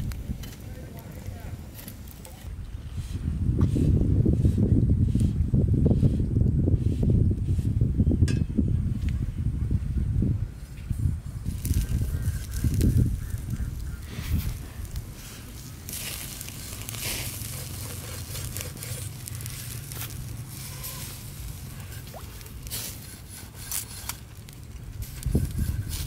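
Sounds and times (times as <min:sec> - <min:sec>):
wood fire crackling: 0:00.0 - 0:02.6, 0:11.5 - 0:26.0.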